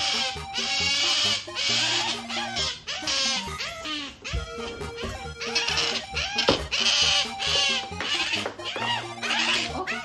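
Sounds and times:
background music: 0:00.0 - 0:10.0
otter squealing: 0:00.0 - 0:10.0.

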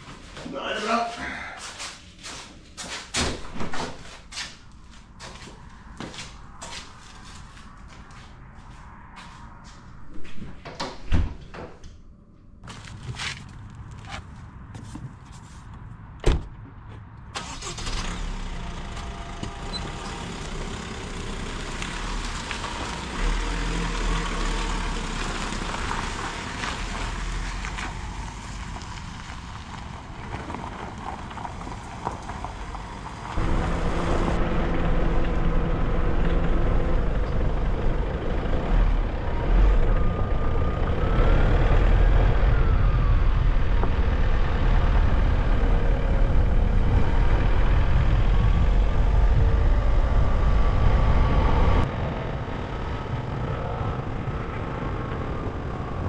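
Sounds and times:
car engine and road noise: 0:00.0 - 0:56.0
car door shutting: 0:16.2 - 0:16.7.

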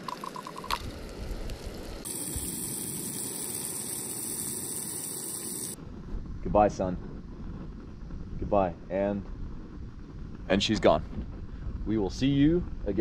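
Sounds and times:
mushrooms sizzling in pan: 0:00.8 - 0:05.8.

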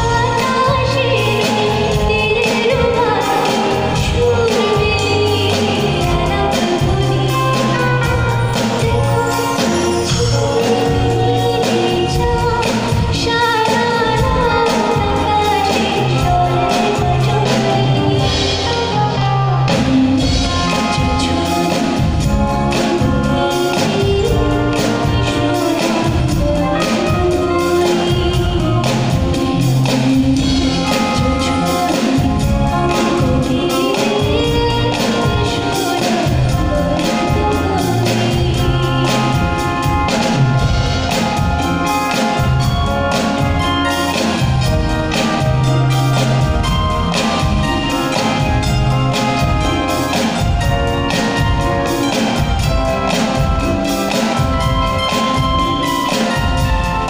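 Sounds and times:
live band playing: 0:00.0 - 0:57.0
woman singing: 0:00.0 - 0:57.0.

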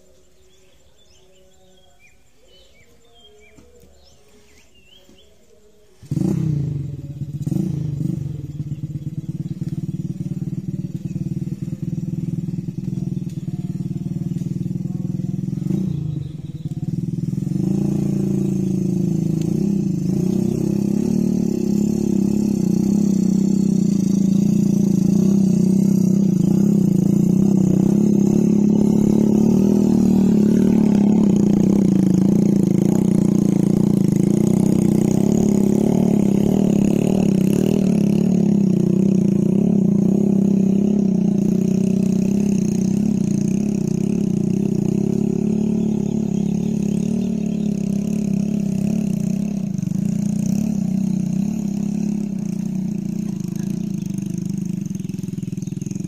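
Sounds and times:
small motorcycle engine under load: 0:03.4 - 0:56.0.

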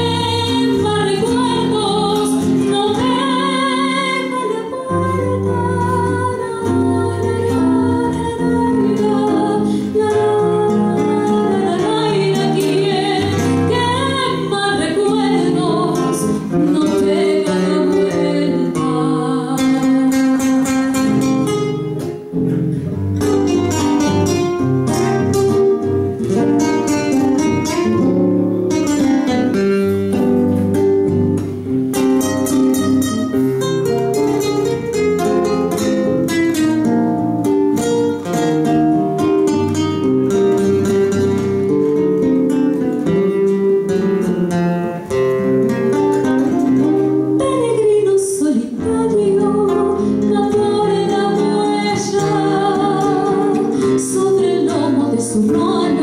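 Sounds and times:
woman singing: 0:00.0 - 0:21.5, 0:46.2 - 0:56.0
fingerpicked acoustic guitar: 0:00.0 - 0:56.0.

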